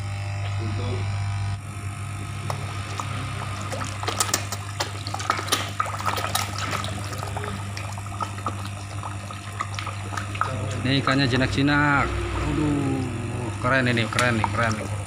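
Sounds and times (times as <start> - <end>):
steady low hum: 0.0 - 15.0
fish splashing at water surface: 2.0 - 15.0.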